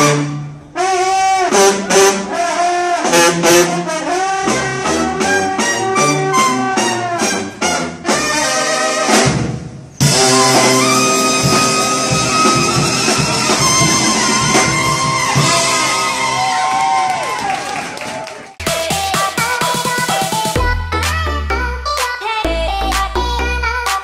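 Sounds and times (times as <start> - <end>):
brass band playing: 0.0 - 16.8.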